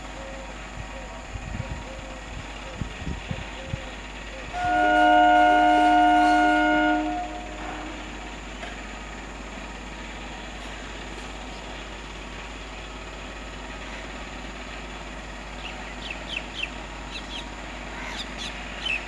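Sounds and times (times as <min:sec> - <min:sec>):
train horn blast: 0:04.5 - 0:08.3.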